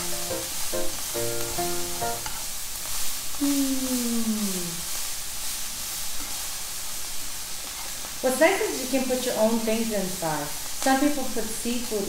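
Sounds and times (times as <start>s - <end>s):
food sizzling in a frying pan: 0.0s - 12.0s.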